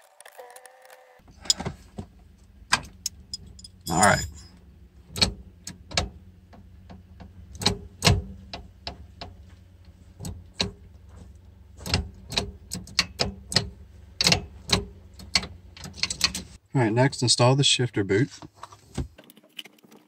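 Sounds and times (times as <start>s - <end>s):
metallic shifter clicks and knocks: 11.8s - 16.6s.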